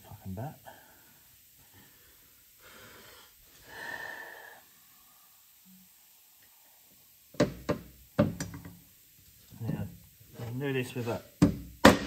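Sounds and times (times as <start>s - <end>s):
breathy blow of air: 1.8s - 5.9s
sharp knocks on metal: 11.4s - 12.0s.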